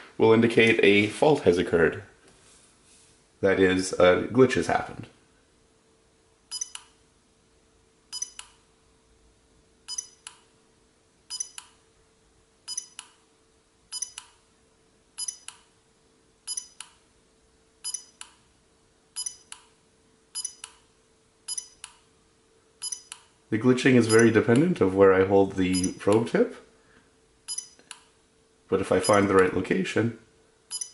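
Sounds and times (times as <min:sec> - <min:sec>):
ringing double click with beep: 0:06.5 - 0:06.9, 0:08.1 - 0:08.6, 0:09.9 - 0:10.4, 0:11.3 - 0:11.7, 0:12.7 - 0:13.1, 0:13.9 - 0:14.3, 0:15.2 - 0:15.6, 0:16.5 - 0:16.8, 0:17.8 - 0:18.2, 0:19.2 - 0:19.6, 0:20.4 - 0:20.8, 0:21.5 - 0:21.9, 0:22.8 - 0:23.2, 0:24.1 - 0:24.4, 0:27.5 - 0:27.8.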